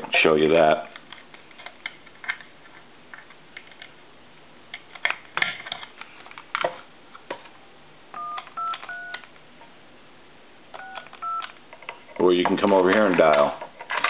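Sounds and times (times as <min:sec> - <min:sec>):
touch-tone beeps: 0:08.2 - 0:09.2, 0:10.8 - 0:11.5.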